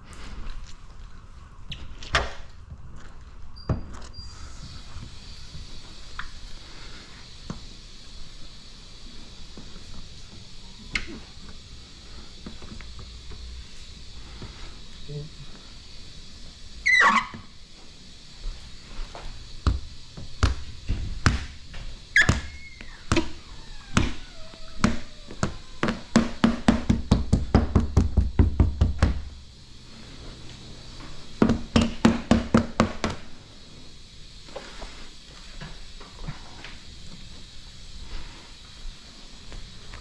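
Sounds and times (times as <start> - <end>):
squeegee squeaking on film: 16.8 - 17.4, 22.1 - 25.3.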